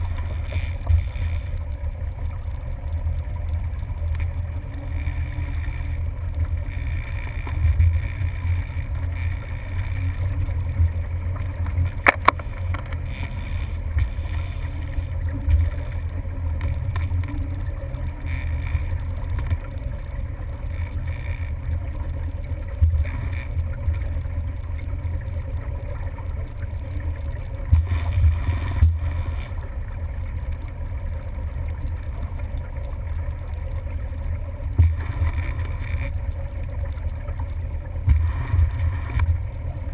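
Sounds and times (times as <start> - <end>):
motorboat engine rumbling: 0.0 - 39.9
sharp click: 12.0 - 13.0.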